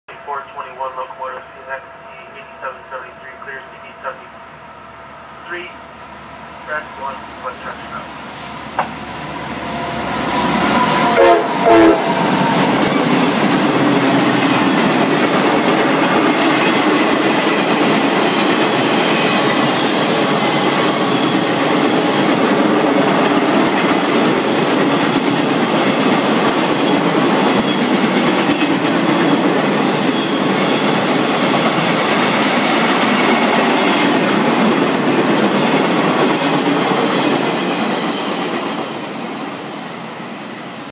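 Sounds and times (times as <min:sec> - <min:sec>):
train rumble and clickety-clack: 0:06.7 - 0:40.9
locomotive horn: 0:09.4 - 0:13.2.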